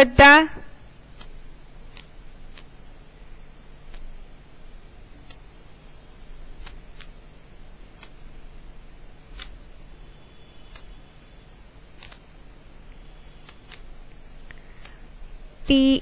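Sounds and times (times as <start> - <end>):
low steady hum: 0.0 - 16.0
faint sharp clicks: 1.2 - 2.7, 3.9 - 4.1, 5.2 - 5.4, 6.6 - 7.1, 8.0 - 8.2, 10.7 - 11.0, 12.0 - 12.2, 13.4 - 15.0.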